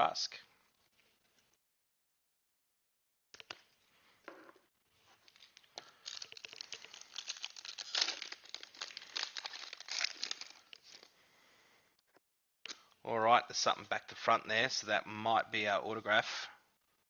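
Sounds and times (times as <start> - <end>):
foil wrapper tearing and crinkling: 5.3 - 11.1.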